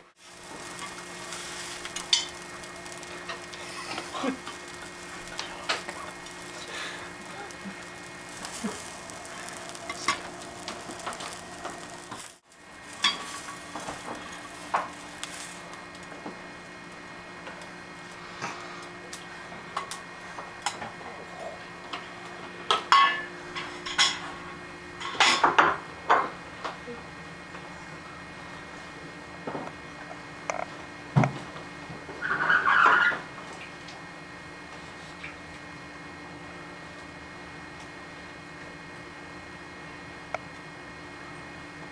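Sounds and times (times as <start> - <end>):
light sizzling: 0.0 - 20.9
spatula scraping a frying pan: 0.2 - 6.6, 7.9 - 15.7.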